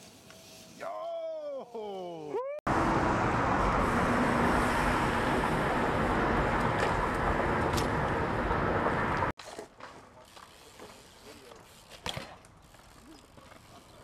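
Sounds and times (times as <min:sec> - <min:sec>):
road traffic roar: 0:02.7 - 0:09.4.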